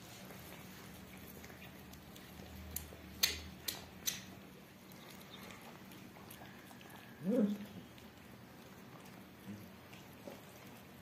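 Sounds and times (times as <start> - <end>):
cats chewing: 0.0 - 11.0
sharp clicks: 2.7 - 4.3.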